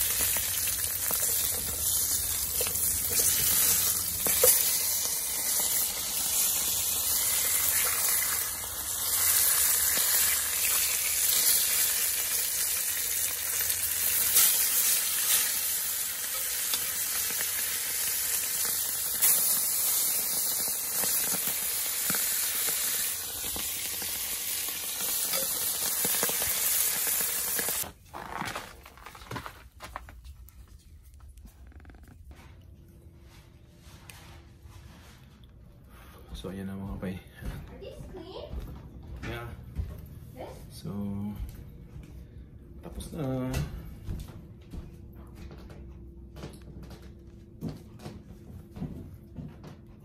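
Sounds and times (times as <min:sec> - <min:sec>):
fish sizzling in frying pan: 0:00.0 - 0:27.9.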